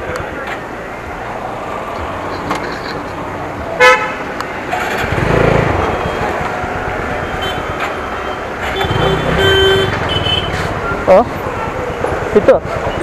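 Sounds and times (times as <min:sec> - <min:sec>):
motorcycle engine revving: 0:04.7 - 0:06.9, 0:08.7 - 0:10.8
motorcycle horn beep: 0:07.3 - 0:10.6.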